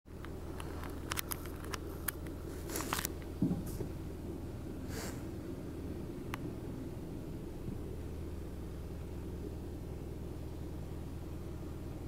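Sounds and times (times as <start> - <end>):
car engine idling: 0.1 - 12.0
brief hiss: 4.9 - 5.3.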